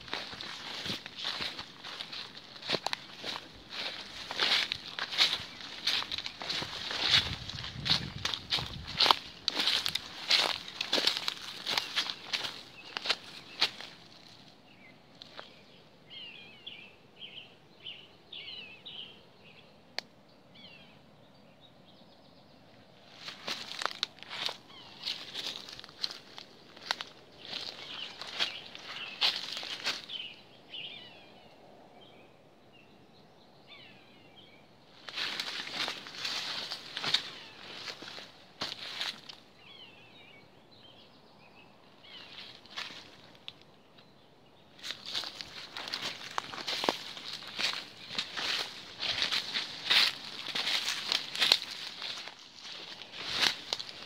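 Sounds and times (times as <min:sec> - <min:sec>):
footsteps in leafy undergrowth: 0:00.0 - 0:14.5, 0:23.0 - 0:30.3, 0:35.0 - 0:39.5, 0:42.0 - 0:43.6, 0:44.8 - 0:54.0
songbird chirping: 0:00.0 - 0:54.0.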